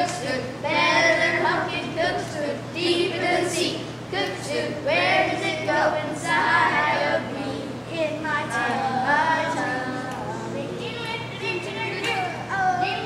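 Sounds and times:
children singing: 0.0 - 13.0
children talking: 6.0 - 13.0.

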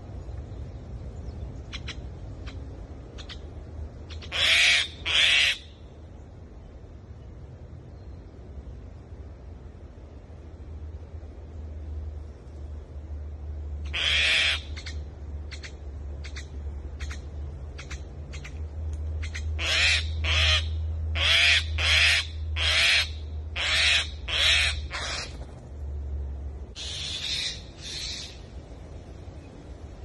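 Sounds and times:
mynas harsh calls: 26.8 - 28.4.

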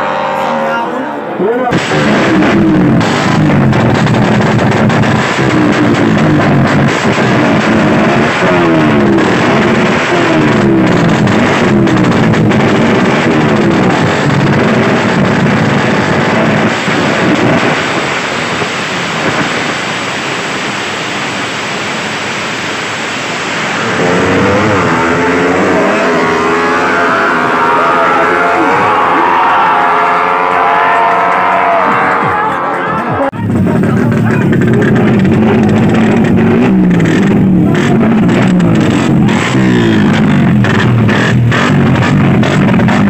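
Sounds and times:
motorcycle engine revving: 1.7 - 32.0, 33.3 - 43.0.

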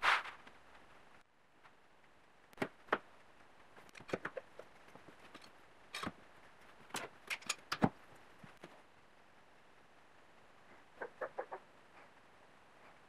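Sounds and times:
bar clamps clicking and knocking: 6.9 - 8.0.

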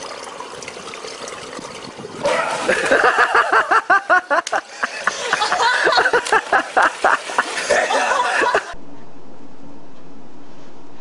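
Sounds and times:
person laughing: 2.5 - 8.8.

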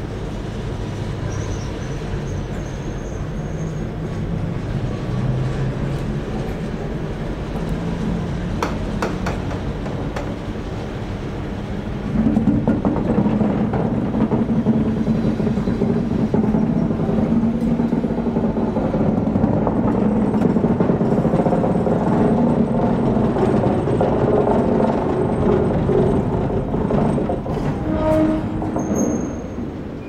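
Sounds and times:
diesel locomotive engine running: 0.0 - 30.0
brief squeal: 1.2 - 3.9, 27.8 - 30.0.

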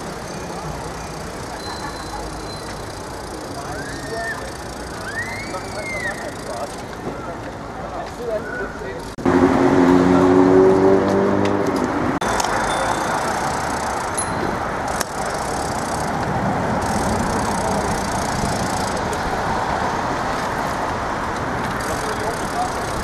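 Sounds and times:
bicycle wheels rolling: 0.0 - 9.1, 12.3 - 23.0
road traffic: 0.0 - 23.0.

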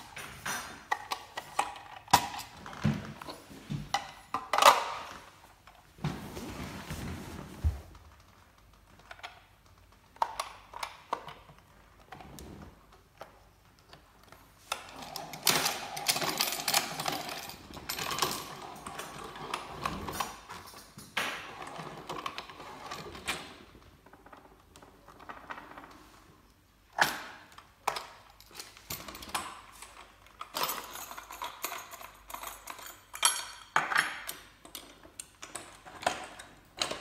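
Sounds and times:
plastic parts clicking and scraping: 0.1 - 5.8.

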